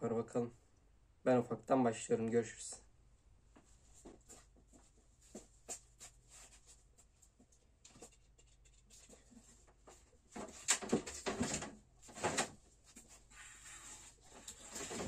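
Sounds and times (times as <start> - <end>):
household clutter knocking and rustling: 7.9 - 13.2, 14.3 - 15.0
rustling and clattering bursts: 7.9 - 15.0.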